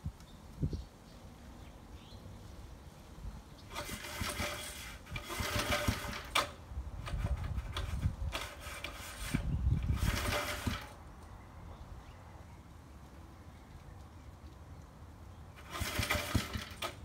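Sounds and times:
recoil starter pull whirr: 3.6s - 11.0s, 15.6s - 17.0s.

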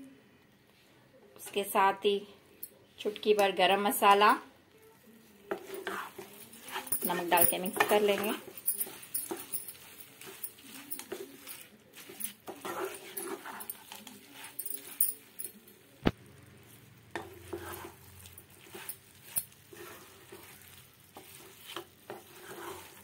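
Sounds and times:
light sizzle of frying: 0.0s - 23.0s
spatula scraping rice in pan: 5.5s - 15.4s, 17.1s - 23.0s.

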